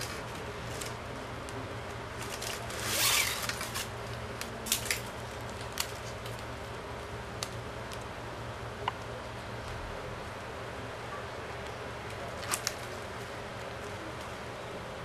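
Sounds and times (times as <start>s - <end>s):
low background hum: 0.0s - 15.0s
plastic strap sliding: 2.2s - 3.9s.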